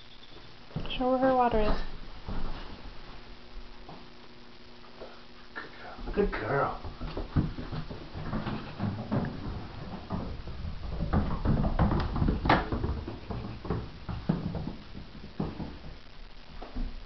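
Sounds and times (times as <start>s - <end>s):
footsteps on hard floors: 0.7s - 4.1s, 6.8s - 17.0s.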